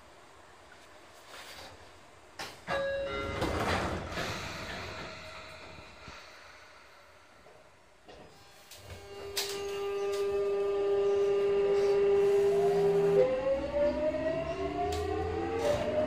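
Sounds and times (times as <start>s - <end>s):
electric train inverter whine: 2.4s - 16.0s.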